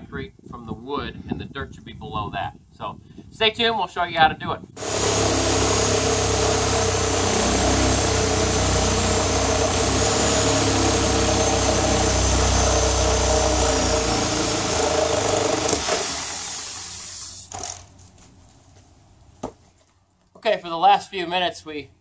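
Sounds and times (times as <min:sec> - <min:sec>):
reciprocating saw cutting wood: 0:04.8 - 0:17.9.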